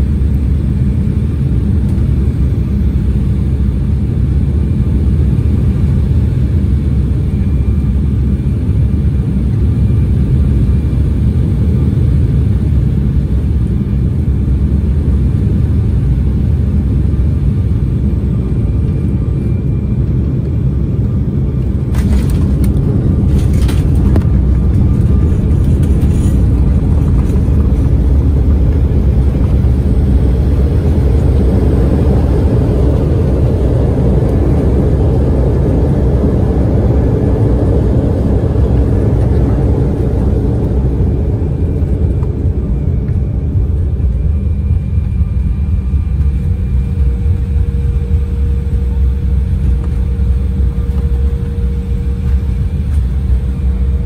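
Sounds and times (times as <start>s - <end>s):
jet engines and airflow rumble: 0.0s - 54.0s
runway rollout rumble: 20.5s - 54.0s.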